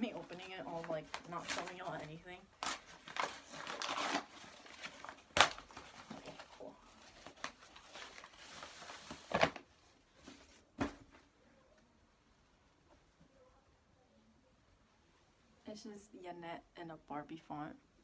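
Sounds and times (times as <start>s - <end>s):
packaging rustling and crinkling: 0.0s - 10.7s.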